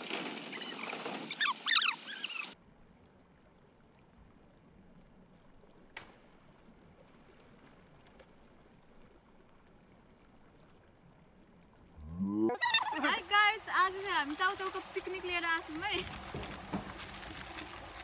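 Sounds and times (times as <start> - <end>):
faint creek hiss: 0.0 - 18.0.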